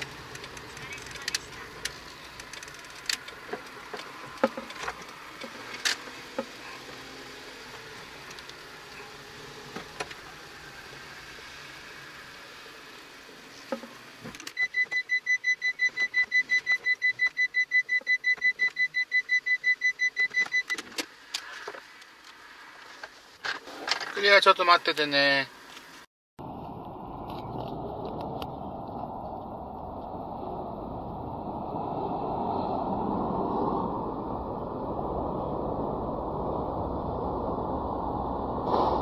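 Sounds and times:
road and engine noise in cabin: 0.0s - 39.0s
high electronic beeps: 14.6s - 20.8s.

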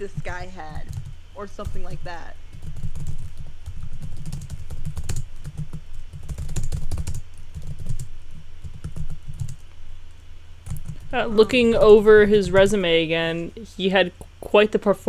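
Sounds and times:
rapid typing on keyboard: 0.2s - 9.6s, 10.6s - 11.1s.

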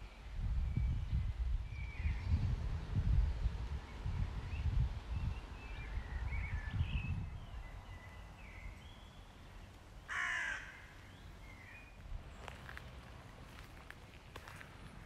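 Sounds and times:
small birds chirping: 3.9s - 12.8s
crow cawing: 10.1s - 11.0s.

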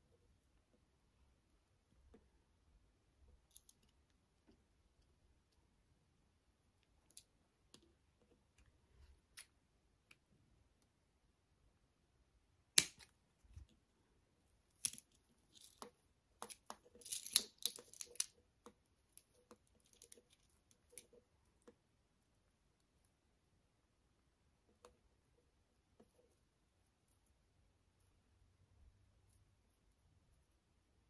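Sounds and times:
beads and wire clicking: 14.7s - 21.8s.

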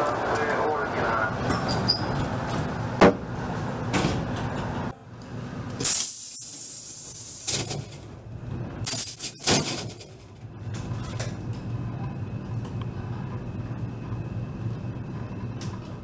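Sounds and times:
electric train interior hum: 0.0s - 16.0s
sharp hissing bursts: 5.8s - 7.6s.

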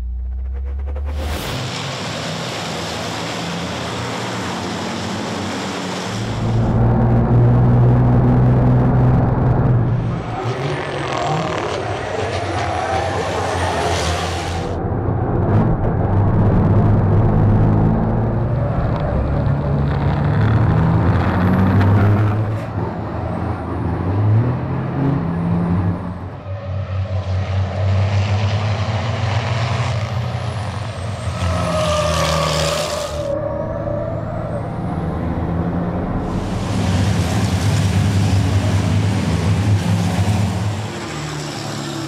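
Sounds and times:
race truck diesel engines: 0.0s - 42.0s.

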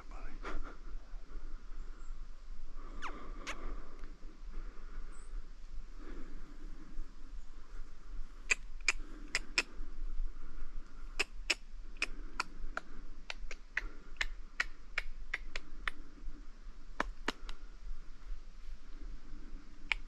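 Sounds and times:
sharp ticks: 11.2s - 16.0s.

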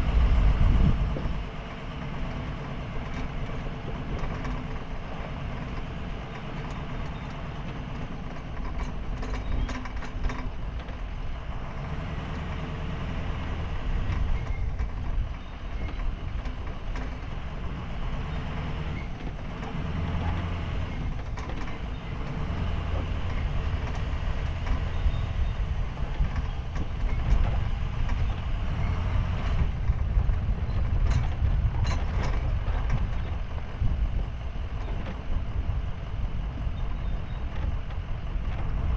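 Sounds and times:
van engine and tyres rumbling: 0.0s - 38.9s
sharp clicks and rattles: 0.9s - 38.9s.

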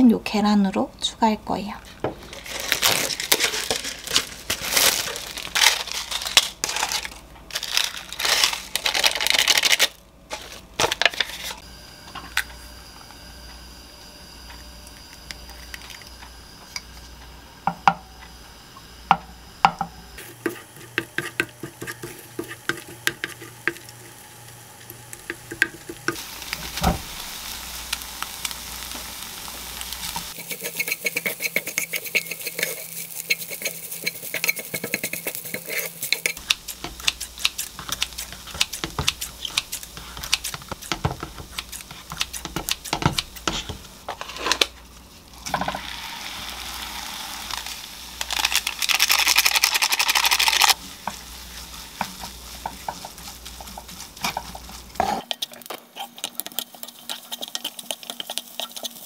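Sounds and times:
egg sizzling in a pan: 14.3s - 59.0s
spatula scraping and tapping pan: 19.6s - 24.1s, 25.1s - 26.2s, 30.3s - 44.6s, 50.8s - 59.0s.

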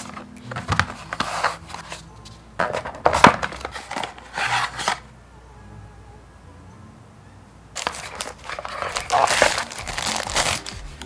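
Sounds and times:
cardboard box being unpacked: 0.0s - 2.0s, 2.6s - 5.1s, 7.8s - 11.0s.

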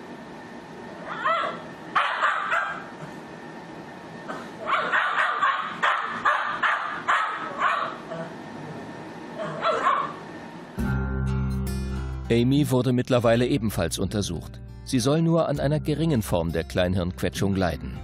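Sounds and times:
dog yelping and whimpering: 1.0s - 2.9s, 4.6s - 8.4s, 9.4s - 10.2s.

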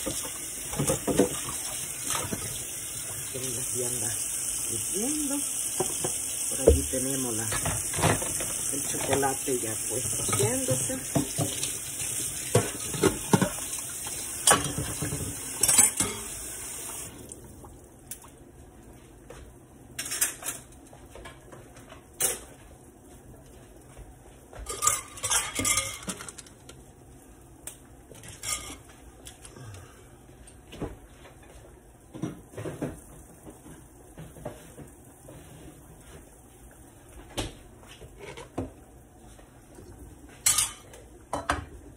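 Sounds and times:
frying hiss: 0.0s - 18.3s, 20.9s - 41.0s
metal kitchenware clattering: 10.0s - 11.6s, 14.4s - 16.4s, 24.7s - 26.5s, 28.2s - 28.8s, 40.4s - 41.6s.

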